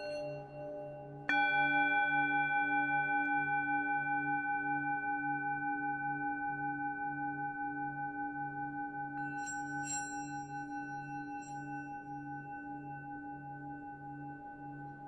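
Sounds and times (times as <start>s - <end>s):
singing bowl ringing: 0.0s - 3.2s, 9.2s - 12.3s.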